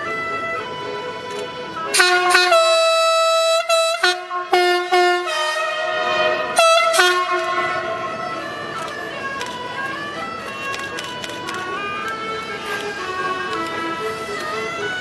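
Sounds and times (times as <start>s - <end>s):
train horn blasts: 1.9s - 8.7s.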